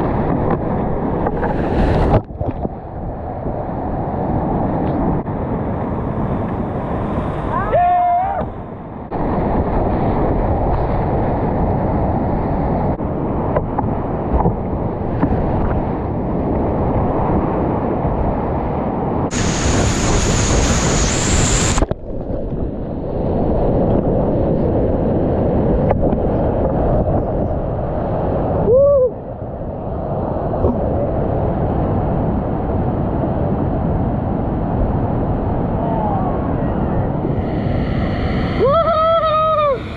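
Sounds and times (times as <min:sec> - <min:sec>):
hiss: 0:19.3 - 0:21.8, 0:37.2 - 0:39.9
high whine: 0:19.3 - 0:22.3, 0:37.2 - 0:39.9.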